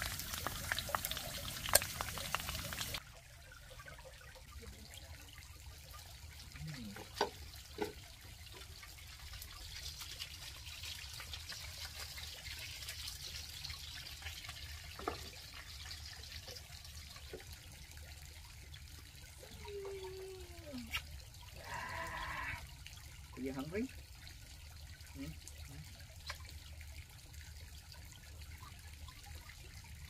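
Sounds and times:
fish sizzling in oil: 0.0 - 3.0, 5.8 - 18.8.

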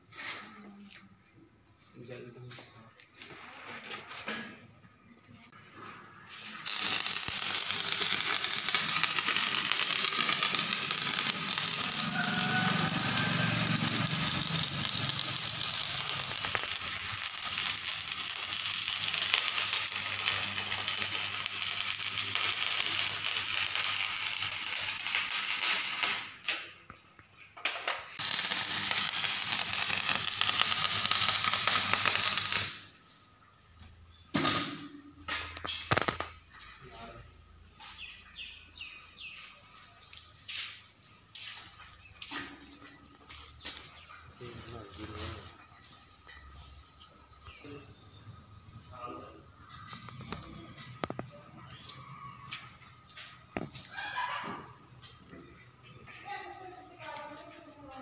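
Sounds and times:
welding arc crackling: 6.4 - 27.0, 28.2 - 33.0, 34.4 - 36.6, 41.4 - 54.0.

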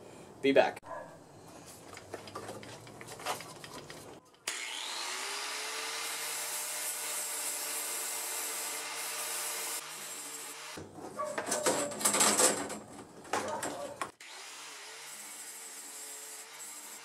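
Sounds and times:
angle grinder grinding steel: 4.5 - 10.8, 14.1 - 17.0.

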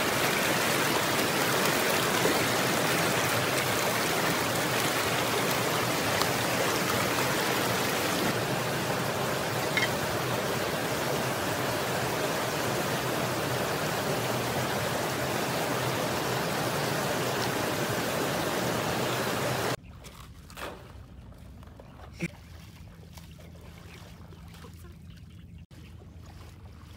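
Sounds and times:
stream rushing over rocks: 0.0 - 19.8.

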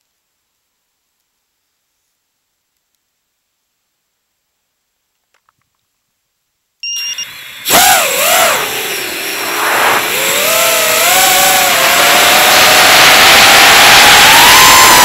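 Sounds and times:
steady high tone: 6.8 - 15.0
drone motors whining: 7.0 - 15.0
propeller wash and wind: 7.4 - 15.0.

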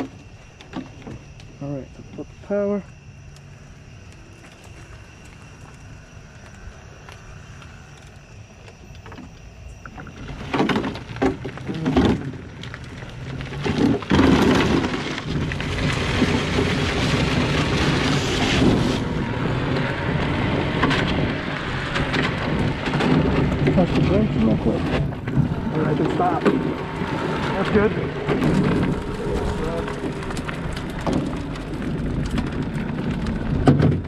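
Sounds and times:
tyre noise on pavement: 0.0 - 34.0
wind buffeting microphone: 12.4 - 34.0.

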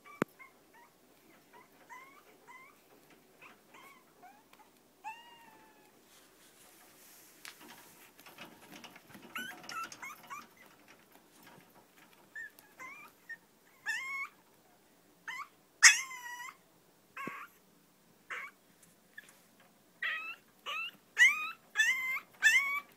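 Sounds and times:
puppy whimpering and yipping: 0.0 - 0.9, 1.5 - 2.8, 3.4 - 5.9, 9.3 - 10.7, 12.3 - 14.4, 15.3 - 16.6, 17.2 - 17.6, 18.3 - 18.6, 20.0 - 22.9.

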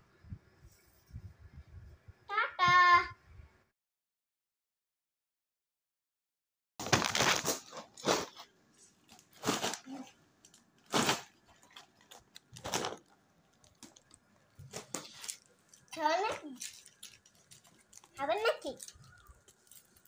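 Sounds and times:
plastic snack packets crackling: 6.8 - 20.0.

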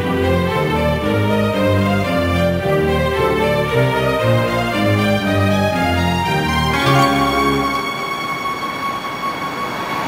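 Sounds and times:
held notes: 6.7 - 8.8.

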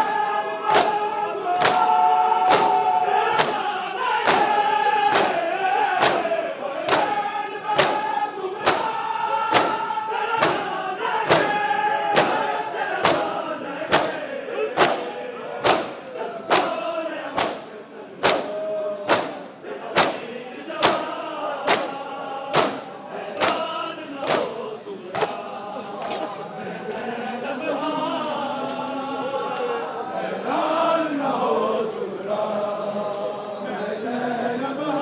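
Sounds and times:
crowd of men chanting: 0.0 - 35.0
chest-beating slaps: 0.7 - 1.0, 1.6 - 1.9, 2.5 - 2.8, 3.4 - 5.4, 6.0 - 6.3, 6.9 - 10.7, 11.3 - 11.6, 12.2 - 14.2, 14.8 - 20.2, 20.8 - 21.1, 21.7 - 24.6.

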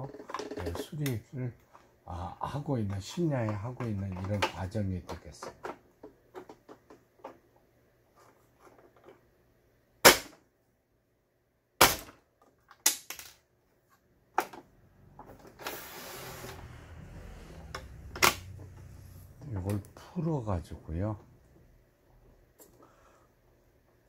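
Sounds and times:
plastic cover snaps and knocks: 11.8 - 13.4.

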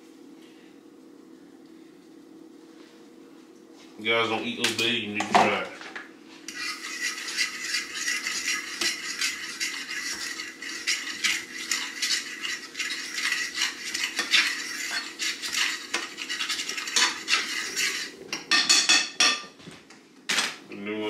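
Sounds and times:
fork scraping metal skillet: 6.5 - 18.8.

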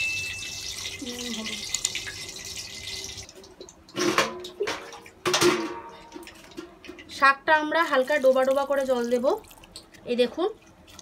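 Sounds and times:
water pouring and splashing: 0.0 - 11.0.

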